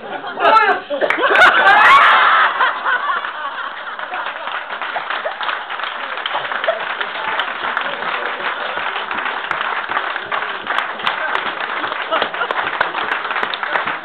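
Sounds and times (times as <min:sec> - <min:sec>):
crowd chatter: 0:03.8 - 0:14.0
hand claps: 0:04.0 - 0:14.0.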